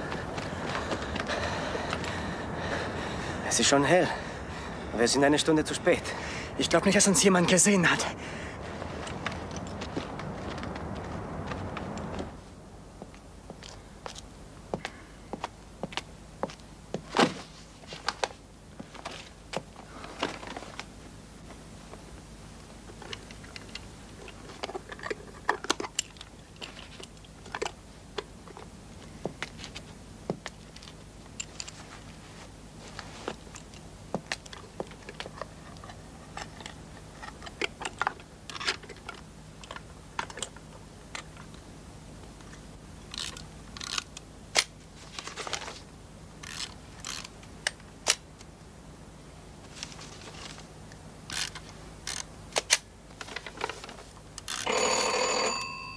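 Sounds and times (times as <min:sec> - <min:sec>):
faint steady hum: 0:00.0 - 0:55.9
papers rustling: 0:17.0 - 0:21.6, 0:44.8 - 0:47.3, 0:49.6 - 0:50.7, 0:51.3 - 0:54.7.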